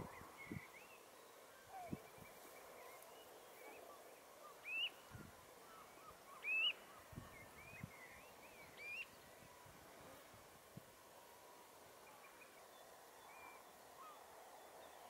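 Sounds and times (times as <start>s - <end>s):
wading birds whistling: 3.7s - 7.1s.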